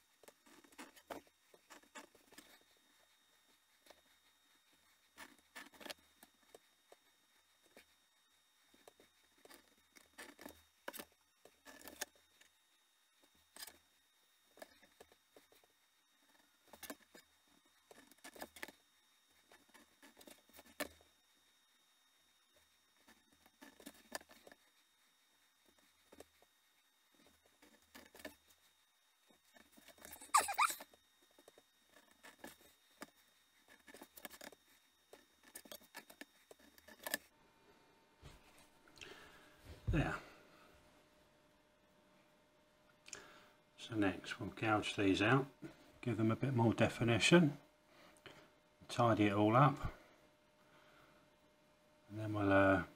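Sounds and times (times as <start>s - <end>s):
craft knife scoring leather: 13.2s - 37.3s.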